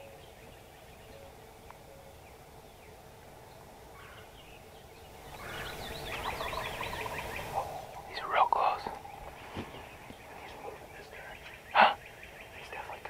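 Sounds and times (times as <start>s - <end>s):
faint bird calls: 0.0s - 13.0s.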